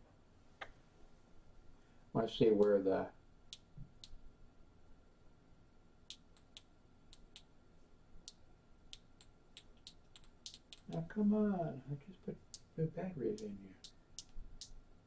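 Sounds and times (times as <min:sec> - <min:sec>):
device buttons clicking: 0:08.3 - 0:11.0.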